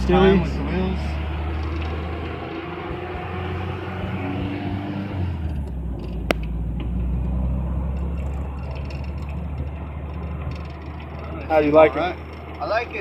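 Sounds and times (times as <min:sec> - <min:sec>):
engine and road drone: 0:00.0 - 0:13.0.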